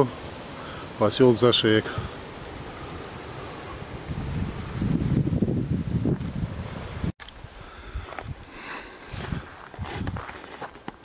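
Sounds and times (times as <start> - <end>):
outdoor hiss: 0.0 - 9.7
wind rumbling on microphone: 1.4 - 10.7
light steps on stony path: 8.0 - 11.0.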